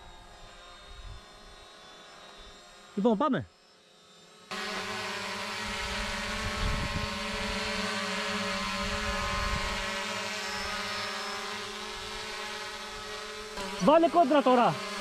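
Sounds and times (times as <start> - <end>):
drone propellers whining: 0.0 - 15.0.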